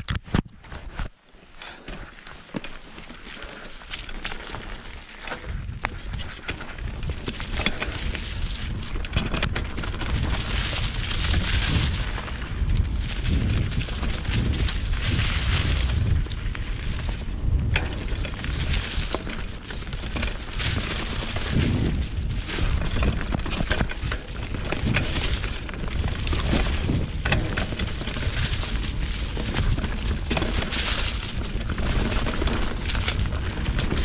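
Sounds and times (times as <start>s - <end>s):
bike rattling over bumps: 0.0s - 34.0s
tyres crunching through leaves: 1.7s - 34.0s.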